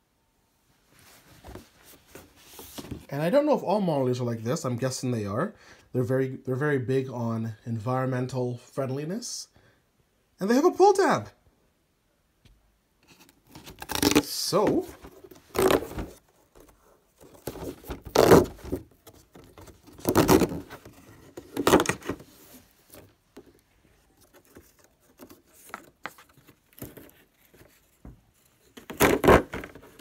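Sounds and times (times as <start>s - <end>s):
cardboard box scraping and rubbing: 13.1s - 23.0s.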